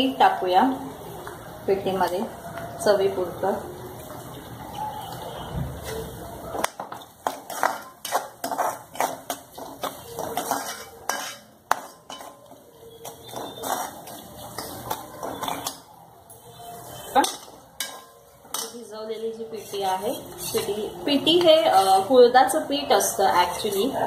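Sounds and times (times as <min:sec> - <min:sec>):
metal spoon scraping frying pan: 0:06.8 - 0:22.1, 0:23.0 - 0:24.0.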